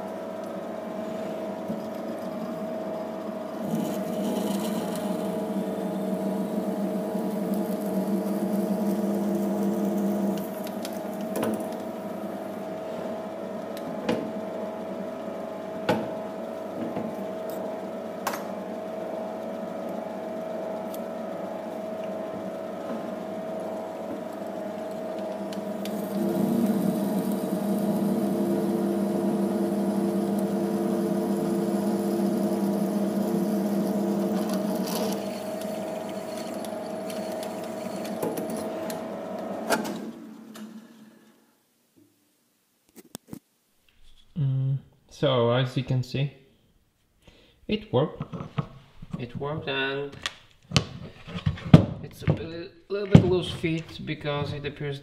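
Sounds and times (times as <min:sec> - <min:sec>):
metal lathe humming: 0:00.1 - 0:15.0, 0:18.6 - 0:39.6.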